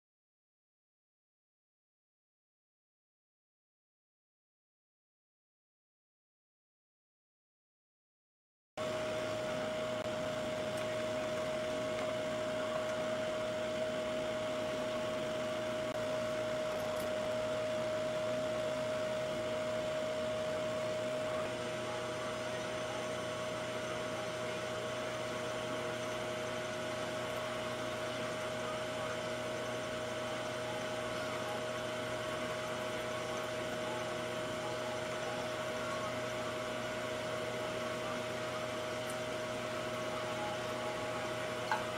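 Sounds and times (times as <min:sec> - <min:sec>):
milling machine whine: 0:08.8 - 0:41.9.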